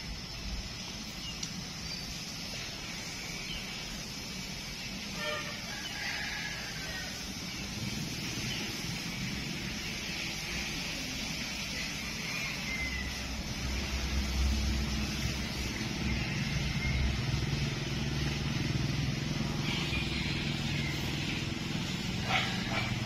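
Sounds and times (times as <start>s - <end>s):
motor engine running: 13.5s - 23.0s.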